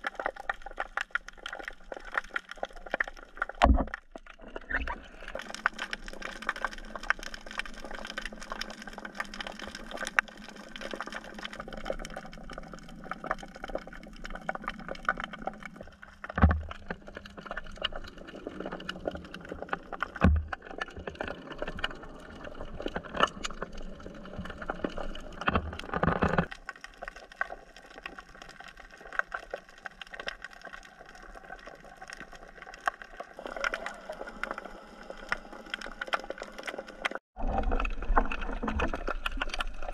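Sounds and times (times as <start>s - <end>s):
underwater water noise with clicks: 0.0s - 39.9s.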